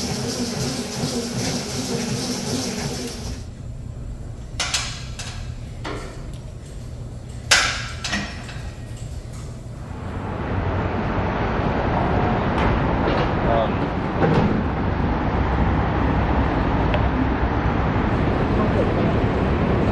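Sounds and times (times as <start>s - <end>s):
treadmill motor hum: 0.0s - 10.4s
weight machine metallic clanks: 7.4s - 9.2s
city street noise: 9.0s - 19.9s.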